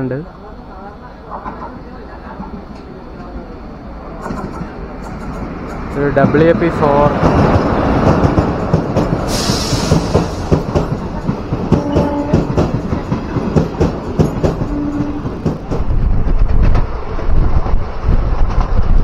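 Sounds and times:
train rumble: 0.0 - 19.0
train wheels clattering over rail joints: 4.2 - 16.9.

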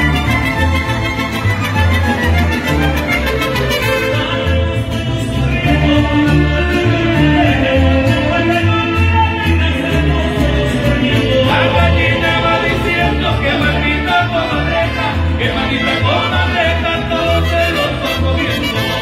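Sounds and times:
violin section melody: 0.0 - 4.7
man singing: 0.0 - 19.0
mariachi ensemble playing: 0.0 - 19.0.

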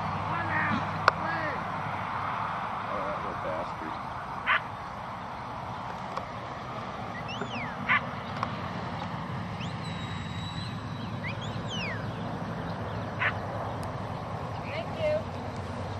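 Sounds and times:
herding whistles: 7.2 - 8.0, 9.6 - 12.1.

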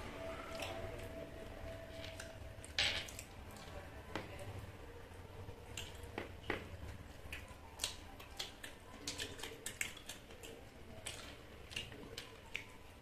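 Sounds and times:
wet mouth chewing smacks: 7.2 - 12.8.

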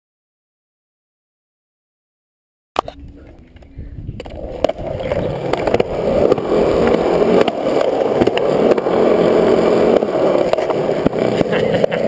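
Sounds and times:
skateboard wheels rolling on concrete: 2.8 - 12.0.

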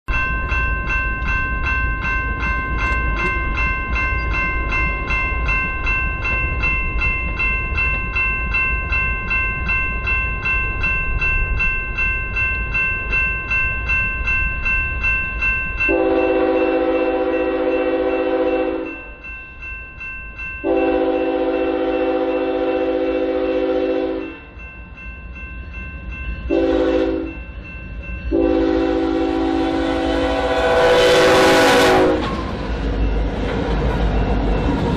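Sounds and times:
crossing bell ringing: 0.1 - 34.9
locomotive air horn blasts: 15.9 - 18.9, 20.6 - 24.3, 26.5 - 27.3, 28.3 - 32.2.

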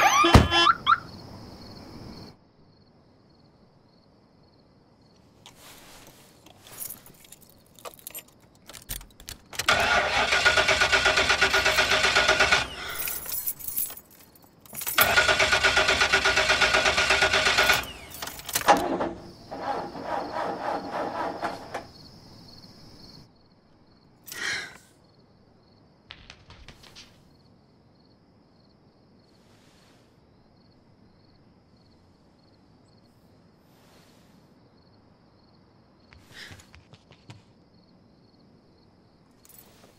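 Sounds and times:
car starter cranking engine: 8.7 - 13.1, 14.8 - 21.9.

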